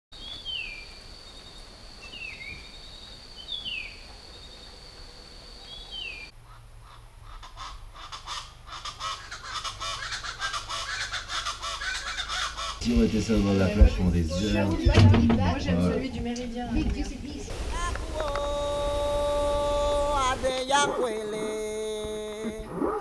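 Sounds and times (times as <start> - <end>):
many birds chattering: 5.6 - 14.8, 17.4 - 21.7
steady high whine: 17.5 - 20.6.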